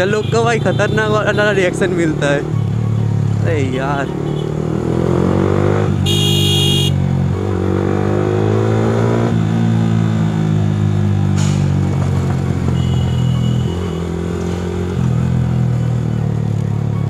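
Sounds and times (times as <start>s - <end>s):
motorcycle engine accelerating: 4.0s - 17.0s
vehicle horn honking: 6.0s - 7.0s, 12.7s - 13.9s.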